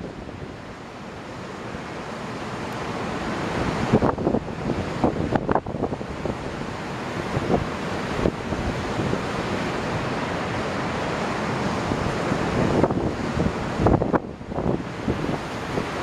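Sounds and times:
waves washing against concrete: 0:00.0 - 0:16.0
wind buffeting microphone: 0:03.3 - 0:10.5, 0:11.7 - 0:16.0.

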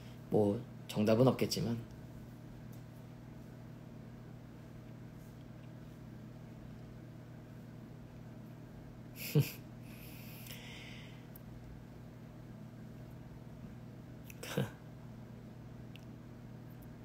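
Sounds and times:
exhaled laugh through nose: 0:09.2 - 0:10.3
soft breath: 0:09.8 - 0:11.4.

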